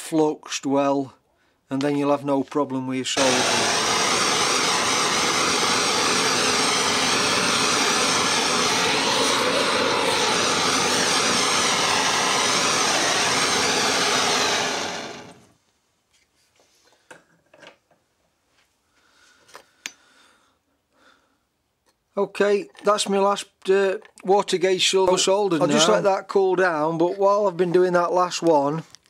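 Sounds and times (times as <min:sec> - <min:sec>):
blowtorch flame hissing: 0:03.2 - 0:15.5, 0:25.6 - 0:26.1.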